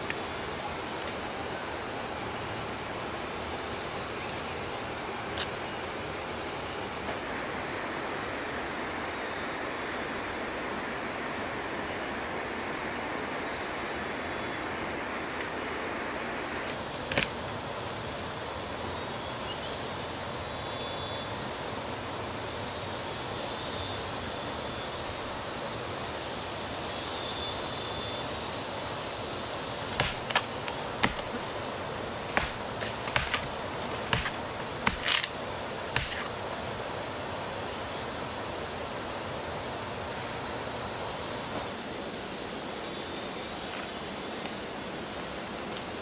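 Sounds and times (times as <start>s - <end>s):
steady background hiss: 0.0s - 46.0s
machete chopping palm stump: 17.0s - 17.4s, 29.9s - 36.4s.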